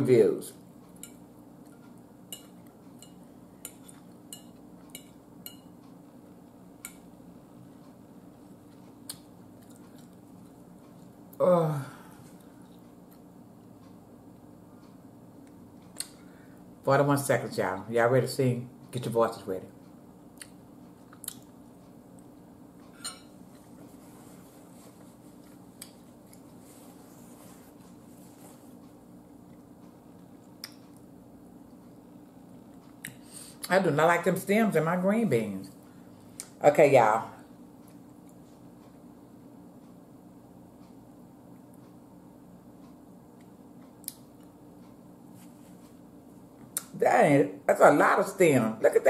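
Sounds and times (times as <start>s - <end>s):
steady low hum: 0.0s - 49.0s
soft eating clicks: 0.6s - 11.4s, 12.3s - 16.3s, 19.7s - 23.8s, 25.0s - 26.6s, 28.7s - 33.8s, 37.7s - 39.2s, 42.7s - 45.1s
fork clinking on plate: 2.3s - 5.7s, 23.0s - 23.4s.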